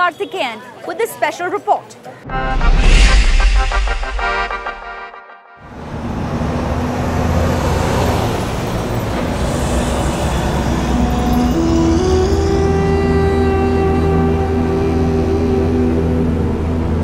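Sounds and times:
musical drone notes: 0:02.3 - 0:17.0
cars passing rumble: 0:05.6 - 0:17.0.

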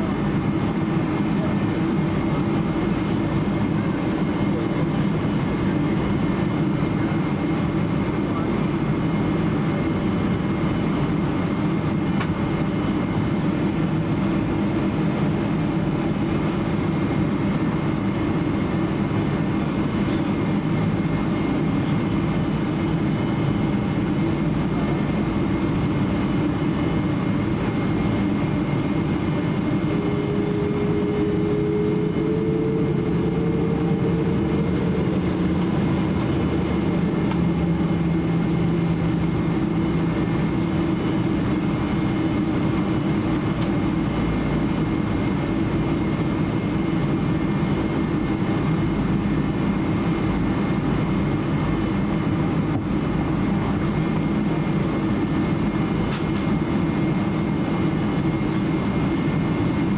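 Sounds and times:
airliner cabin rumble: 0:00.0 - 0:59.9.

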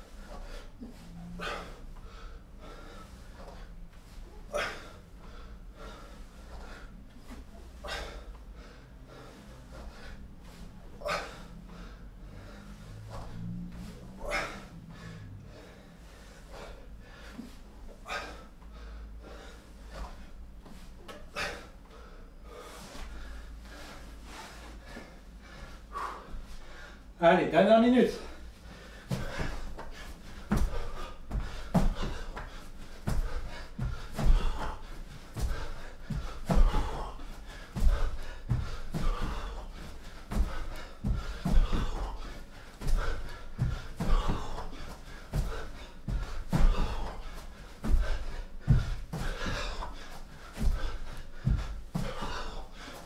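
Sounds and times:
man breathing hard: 0:00.0 - 0:27.2, 0:28.0 - 0:53.0
thuds of hands and feet on mat: 0:29.0 - 0:53.0.

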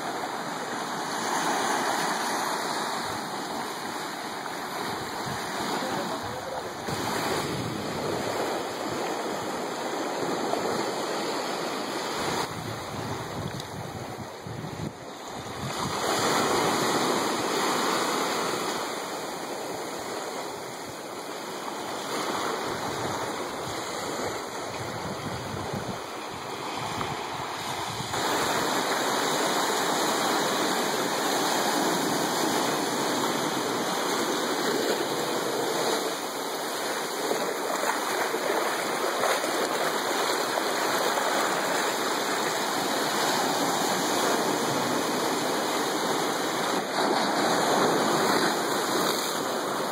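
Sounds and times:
waves washing onto beach: 0:00.0 - 0:49.9.

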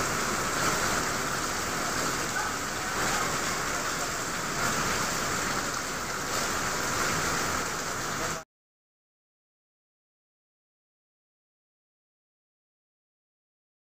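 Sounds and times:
heavy rain falling: 0:00.0 - 0:08.4.

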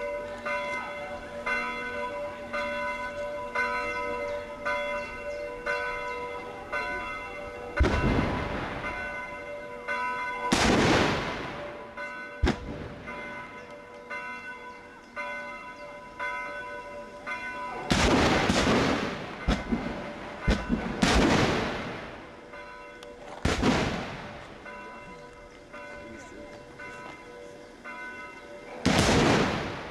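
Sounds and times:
church bells ringing: 0:00.0 - 0:29.9
guns firing with echoes: 0:07.8 - 0:09.0, 0:10.5 - 0:11.8, 0:12.4 - 0:13.2, 0:17.8 - 0:22.2, 0:23.4 - 0:24.5, 0:28.7 - 0:29.9.

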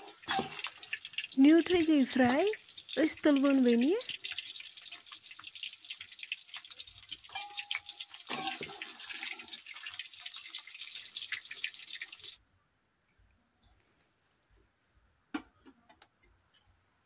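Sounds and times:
metal spoon scraping pan: 0:00.0 - 0:00.8, 0:07.2 - 0:09.6
food sizzling in hot oil: 0:00.0 - 0:12.4.

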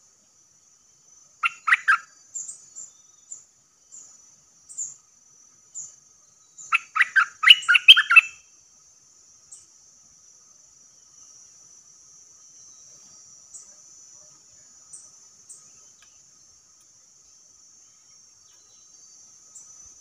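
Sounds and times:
bulbul song: 0:01.4 - 0:02.0, 0:06.6 - 0:08.4.

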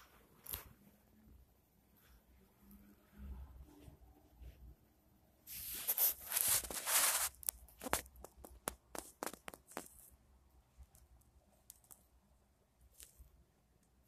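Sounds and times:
sharp clicks and crackles: 0:10.8 - 0:12.1.

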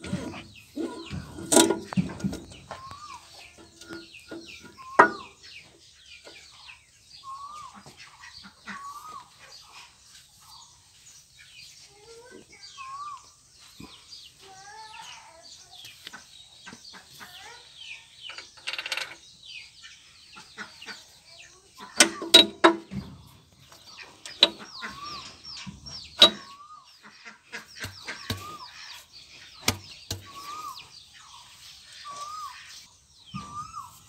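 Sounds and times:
birds chirping: 0:00.0 - 0:34.0
metallic clanks of gear parts: 0:01.3 - 0:02.4.

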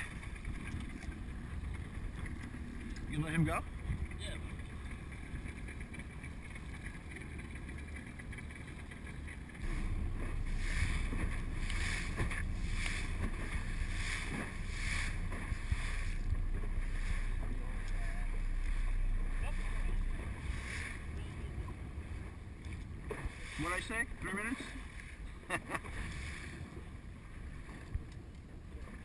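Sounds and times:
motorboat engine and hull noise: 0:00.0 - 0:29.0
wind and water wash: 0:00.0 - 0:29.0
wind rumble on microphone: 0:00.0 - 0:29.0
spray swishing as hull hits waves: 0:09.5 - 0:22.4, 0:23.0 - 0:25.2.

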